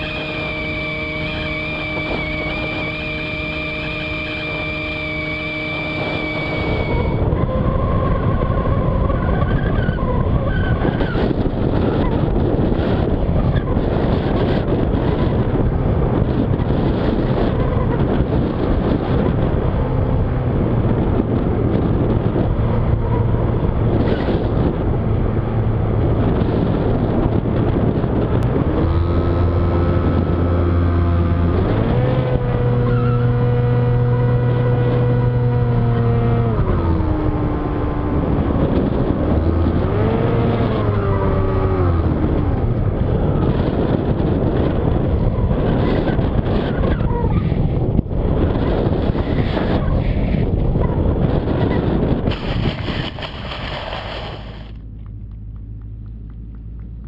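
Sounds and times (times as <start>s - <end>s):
electric motor and propeller whine: 0.0s - 46.9s
air rushing over camera: 47.5s - 54.9s.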